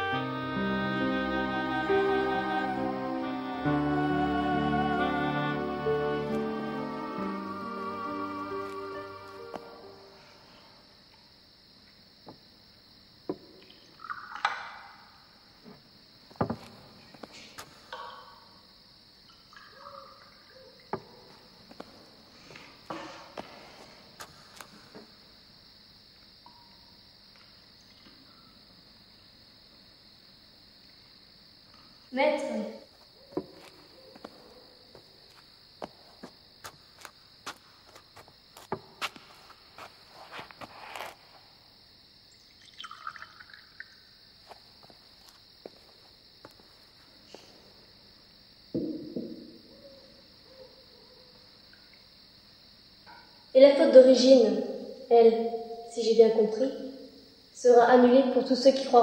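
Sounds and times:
faint steady hiss: 0:00.0 - 0:50.3
crickets chirping: 0:00.0 - 0:59.0.

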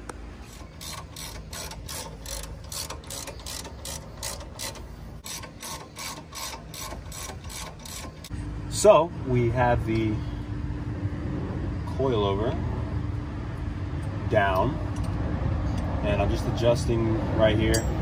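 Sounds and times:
ratchet wrench clicking: 0:00.4 - 0:08.3.

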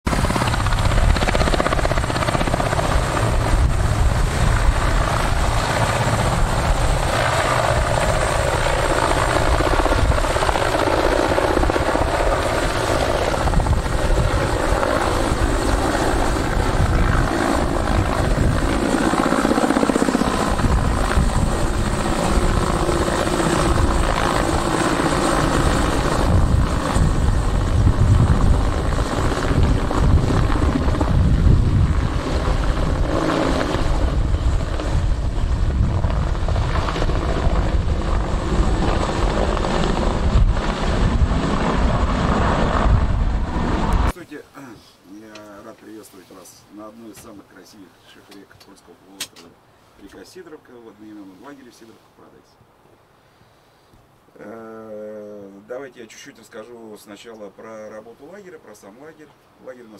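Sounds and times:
helicopter rotor and engine drone: 0:00.1 - 0:44.1.

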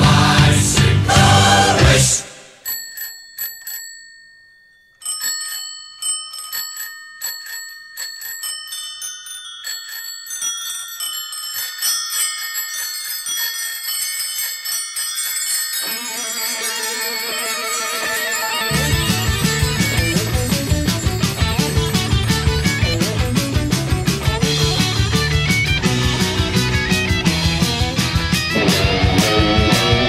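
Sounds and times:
bicycle bells ringing: 0:02.6 - 0:28.6.

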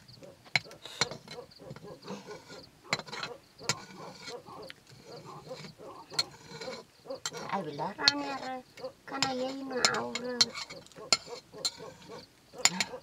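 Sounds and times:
metal spatula scraping a pot: 0:00.6 - 0:13.0.

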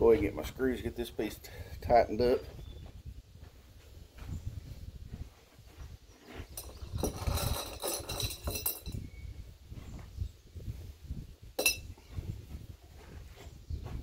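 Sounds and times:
metal screws clinking and rattling: 0:06.5 - 0:09.1, 0:11.6 - 0:11.9
sharp clink: 0:11.6 - 0:11.9.

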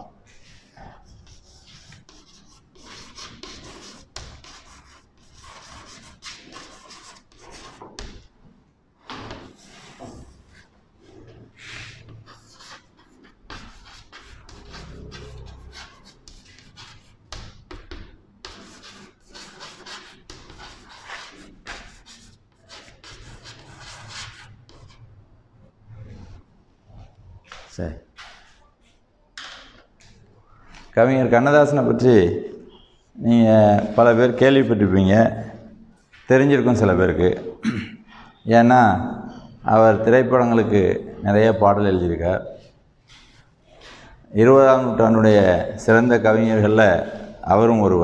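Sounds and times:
chalk scratching on blackboard: 0:00.3 - 0:08.2, 0:09.2 - 0:25.2.

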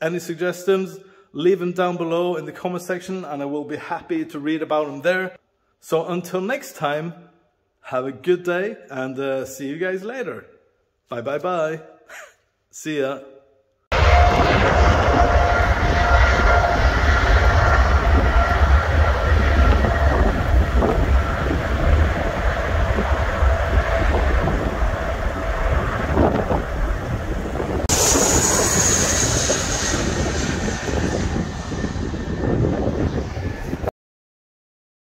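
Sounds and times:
jet engine whine: 0:13.9 - 0:33.9
landing airliner jet whine: 0:13.9 - 0:33.9
wind rumble on microphone: 0:14.0 - 0:33.9.

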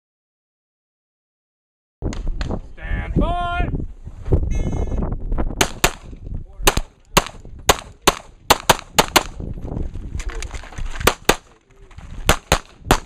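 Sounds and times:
handgun shots: 0:05.6 - 0:09.4, 0:12.3 - 0:13.0.

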